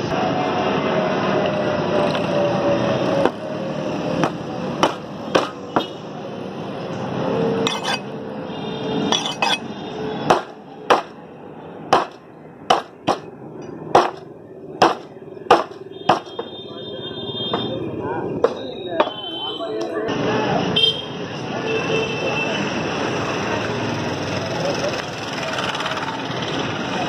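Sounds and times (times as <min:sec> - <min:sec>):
cleaver chopping meat on wood: 0:04.2 - 0:05.9, 0:10.3 - 0:11.2, 0:11.9 - 0:13.3, 0:13.9 - 0:14.2, 0:14.8 - 0:16.5.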